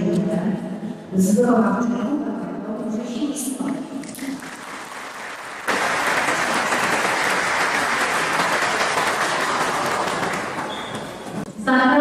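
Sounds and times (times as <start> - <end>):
audience applause: 4.2 - 11.4.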